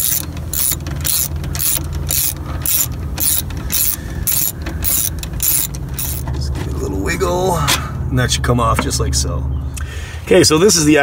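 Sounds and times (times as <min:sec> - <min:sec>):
ratchet wrench clicking: 0:00.0 - 0:06.3.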